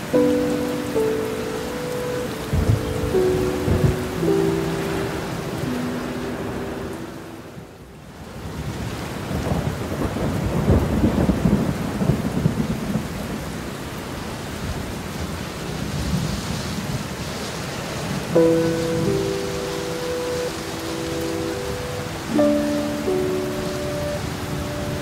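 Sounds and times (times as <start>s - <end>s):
steady rain: 0.0s - 25.0s
rolling thunder: 2.4s - 5.8s, 8.5s - 13.4s.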